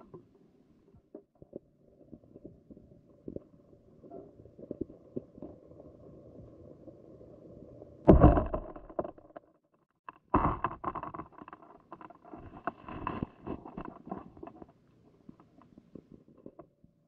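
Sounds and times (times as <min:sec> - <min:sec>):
muffled thumps: 0:08.1 - 0:09.4.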